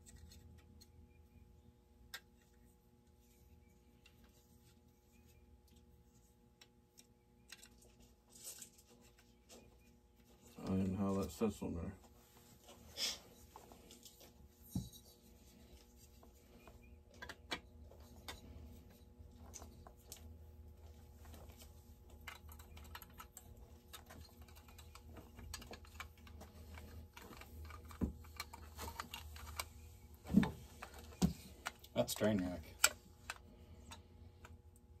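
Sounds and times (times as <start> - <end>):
small parts clicking and tapping: 0.0 - 1.3, 2.0 - 3.2, 5.6 - 10.8, 15.8 - 30.1, 30.7 - 35.0
low steady hum: 0.0 - 35.0.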